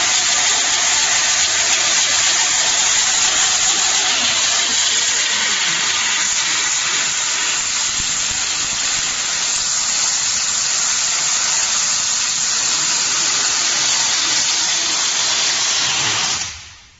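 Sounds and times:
tape slitting machine hissing: 0:00.0 - 0:16.9.

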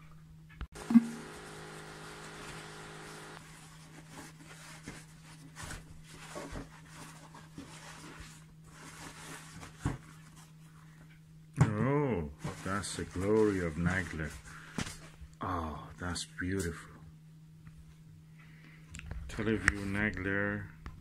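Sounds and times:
faint steady hum: 0:00.0 - 0:21.0
tissue paper rustling: 0:03.4 - 0:10.8, 0:12.5 - 0:14.7.

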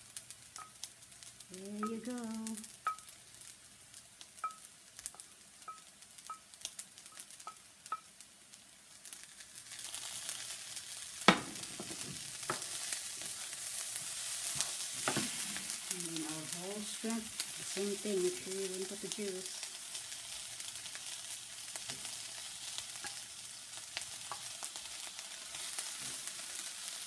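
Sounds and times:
rice sizzling in skillet: 0:00.0 - 0:27.0
spoon tapping metal pan: 0:00.6 - 0:00.9, 0:01.8 - 0:02.1, 0:02.8 - 0:03.2, 0:04.4 - 0:06.5, 0:07.1 - 0:08.1, 0:11.3 - 0:12.7, 0:23.0 - 0:23.2.

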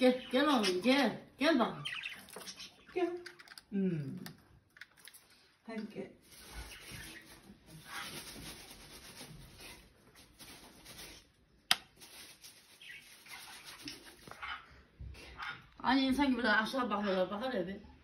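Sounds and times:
small birds chattering: 0:00.0 - 0:03.5, 0:12.7 - 0:14.7.

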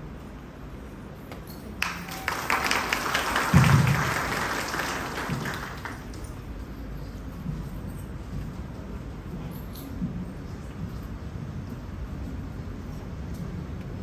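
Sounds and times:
audience clapping: 0:01.8 - 0:06.4.

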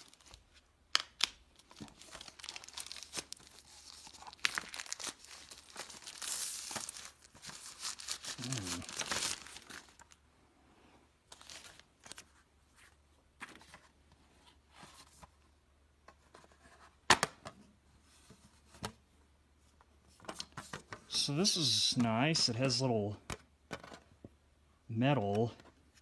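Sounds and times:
wrapping sheet rustling: 0:01.6 - 0:10.2.

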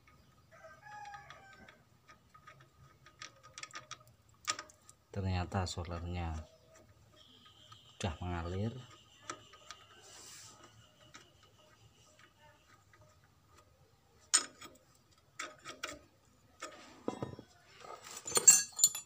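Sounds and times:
metal spanner clinking on fittings: 0:18.1 - 0:19.0.

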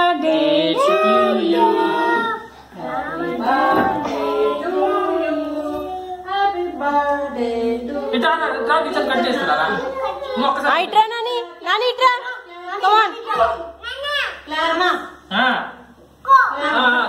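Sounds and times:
children and women singing: 0:00.0 - 0:09.9.

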